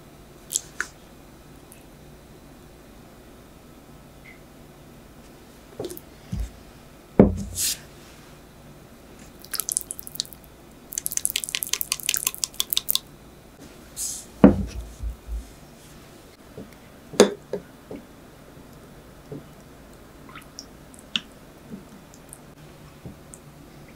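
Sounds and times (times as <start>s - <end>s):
wet clicks of jelly in glass: 11.0s - 13.0s.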